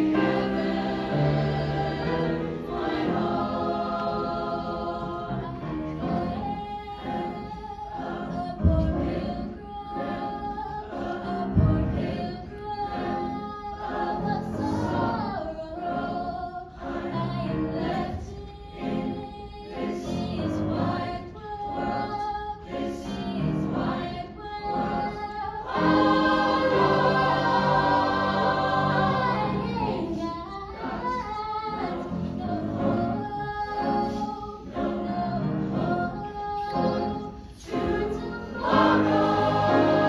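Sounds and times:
mixed choir singing: 0.0s - 40.0s
low thud: 8.6s - 9.4s, 11.5s - 12.5s.

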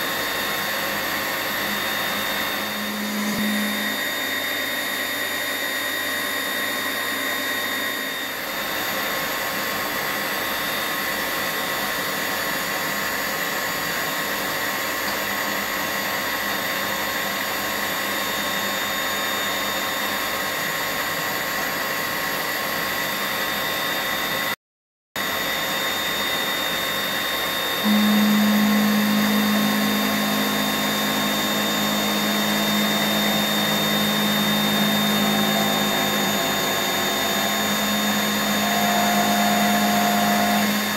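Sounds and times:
milling machine whine: 0.0s - 24.6s, 25.2s - 40.9s
strong low hum: 27.8s - 40.9s.

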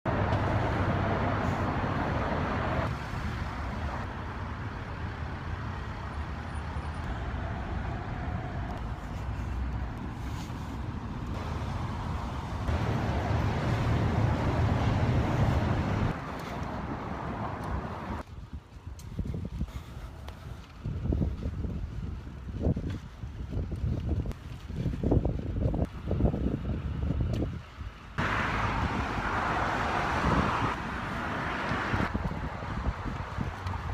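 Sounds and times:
city traffic rushing: 0.0s - 18.4s, 25.3s - 33.9s
wind on microphone: 7.0s - 33.9s.

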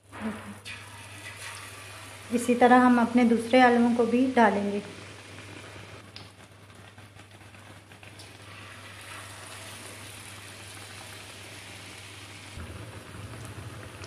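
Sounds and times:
battered potato sizzling in oil: 0.1s - 14.0s.

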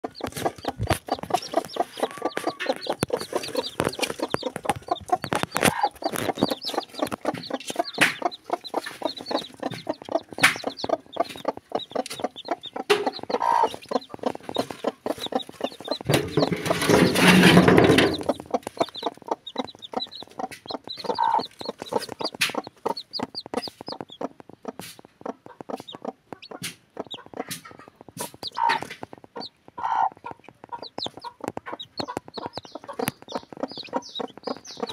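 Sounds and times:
chicks peeping: 0.0s - 34.9s
hen clucking: 0.0s - 34.9s
loud rustling: 14.2s - 18.9s.

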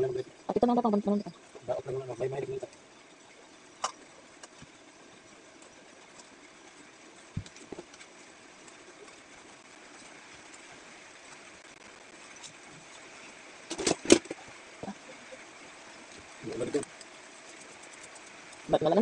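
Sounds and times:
steady low hiss: 0.0s - 19.0s.

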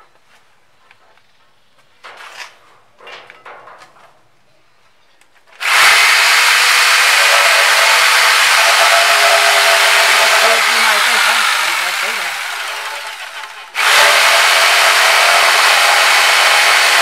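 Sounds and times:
electric jigsaw cutting wood: 5.6s - 17.0s.

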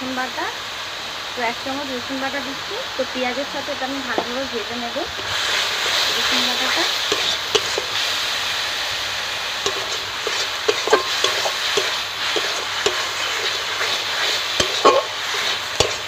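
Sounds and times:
paste sizzling in hot oil: 0.0s - 16.0s
metal spatula scraping pan: 5.2s - 8.1s, 9.6s - 16.0s.

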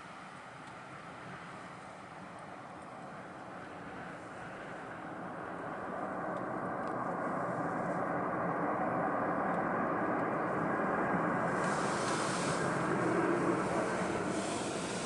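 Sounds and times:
jet engines rushing: 0.1s - 15.0s
high hiss: 11.5s - 15.0s.

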